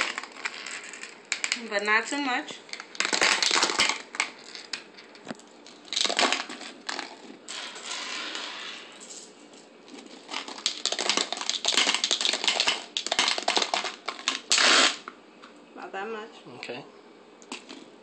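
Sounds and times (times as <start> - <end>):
candies rattling into plastic bottle: 0.0 - 1.7, 2.7 - 8.2, 9.9 - 15.0.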